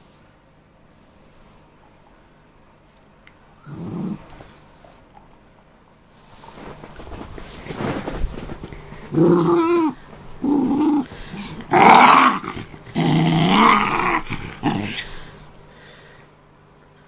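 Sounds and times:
dog play-growling: 0:03.6 - 0:04.7, 0:07.1 - 0:15.6.

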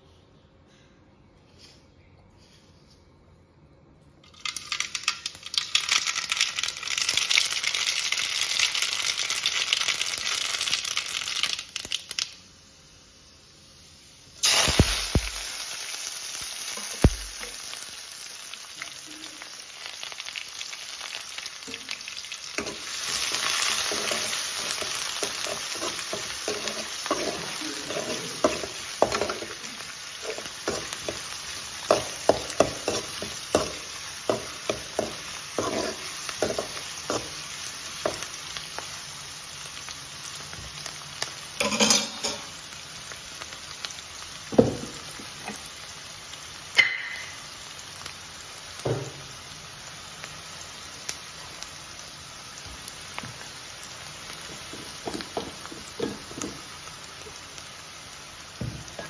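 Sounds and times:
shallots sizzling in hot oil: 0:04.2 - 0:59.0
metal spatula scraping pan: 0:23.7 - 0:29.6, 0:32.6 - 0:37.3.

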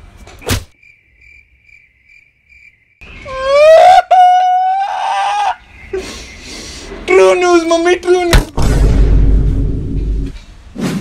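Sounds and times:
sharp smack: 0:00.4 - 0:00.7.

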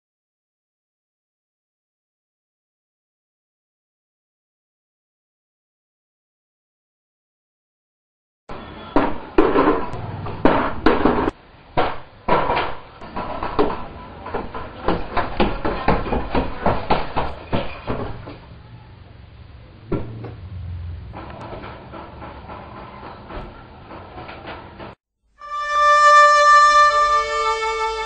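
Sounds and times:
sharp knocks and clattering: 0:08.5 - 0:18.5, 0:19.9 - 0:25.0.

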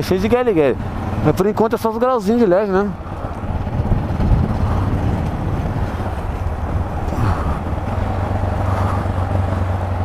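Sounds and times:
motorcycle engine running: 0:00.0 - 0:10.0
wind noise on microphone: 0:03.0 - 0:10.0.

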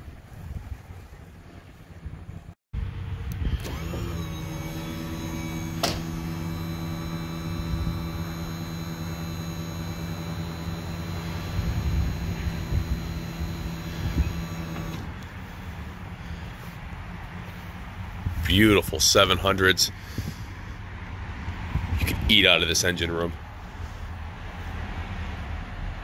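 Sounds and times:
electric lift motor humming: 0:03.3 - 0:15.2
sharp click: 0:05.7 - 0:06.2.

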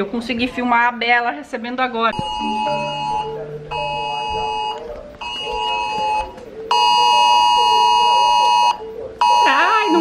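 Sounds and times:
two-tone alert buzz: 0:02.1 - 0:10.0.

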